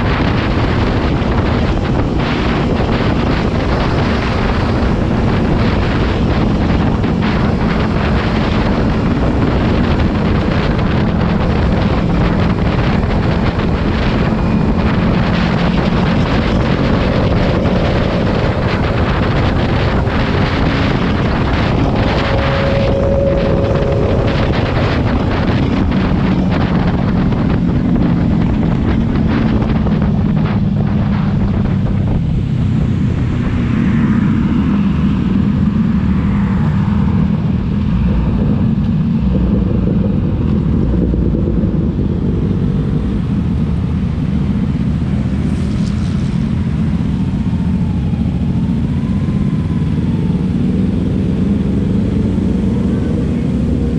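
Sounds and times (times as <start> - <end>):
motorcycle engine drone: 0.0 - 53.9
wind rushing over microphone: 0.0 - 53.9.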